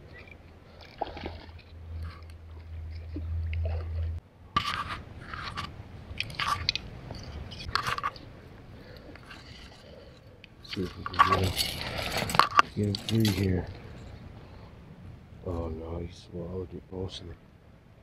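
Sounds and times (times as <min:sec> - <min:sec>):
low rumble: 0:00.0 - 0:08.8.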